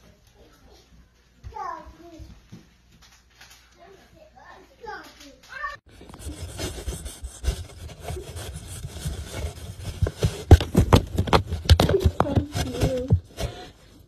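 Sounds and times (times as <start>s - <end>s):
cat scratching cardboard box: 6.1s - 13.6s.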